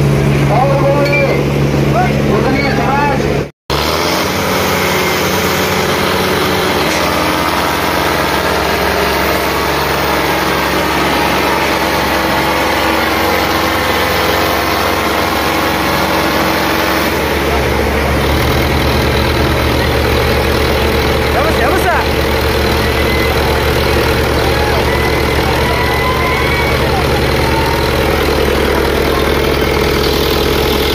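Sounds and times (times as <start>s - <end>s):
tractor engines under load: 0.0s - 30.9s.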